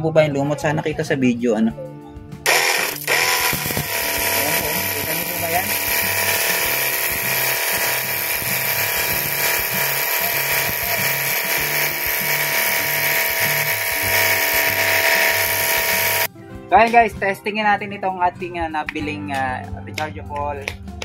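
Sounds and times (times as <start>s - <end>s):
background music with bass: 0.0s - 21.0s
pump motor whining: 2.4s - 16.3s.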